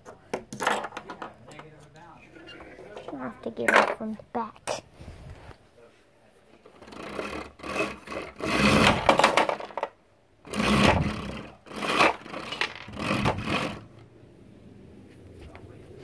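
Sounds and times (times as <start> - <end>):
toy wheels rolling on wood: 6.6 - 14.0.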